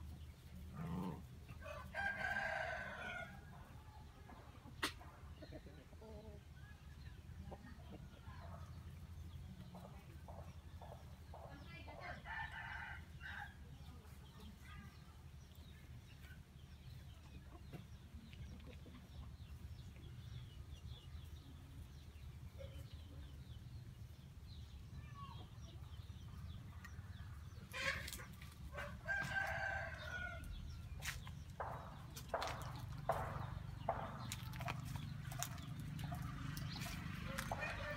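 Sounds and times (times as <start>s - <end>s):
sharp knocks: 31.6s - 34.6s.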